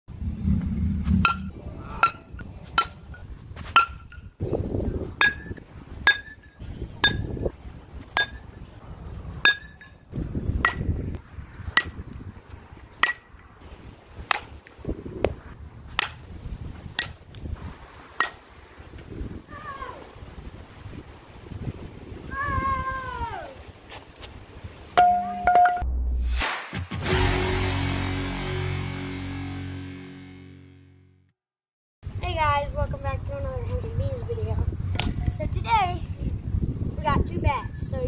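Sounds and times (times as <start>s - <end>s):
wind buffeting microphone: 0.1s - 25.0s, 32.0s - 38.0s
metal bat pinging on ball: 1.2s - 4.3s, 5.2s - 7.4s, 8.1s - 8.5s, 9.4s - 10.0s, 10.6s - 11.0s, 11.7s - 12.0s, 13.0s - 13.3s, 25.0s - 25.8s.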